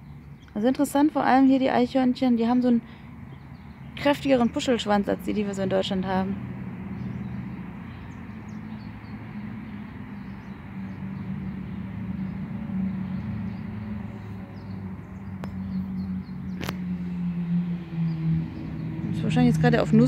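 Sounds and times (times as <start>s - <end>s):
low mechanical drone: 3.4s - 20.0s.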